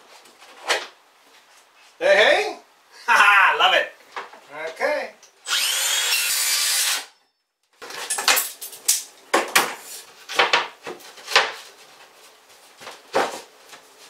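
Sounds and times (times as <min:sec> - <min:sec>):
circular saw cutting wood: 0:05.4 - 0:07.1.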